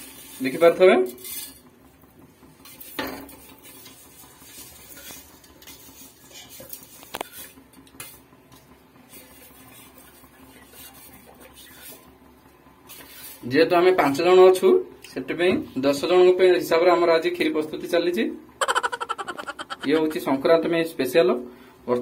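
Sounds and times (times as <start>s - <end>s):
small scraping sounds: 1.2s - 1.7s, 2.6s - 12.1s, 12.8s - 13.5s.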